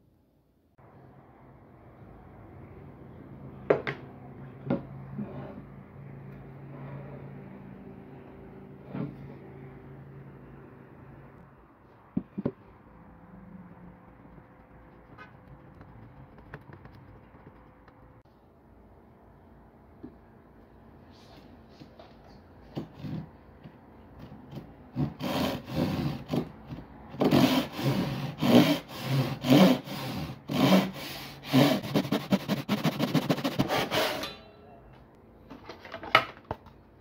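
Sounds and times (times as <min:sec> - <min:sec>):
hand saw cutting wood: 0:24.9 - 0:26.6, 0:27.2 - 0:34.4.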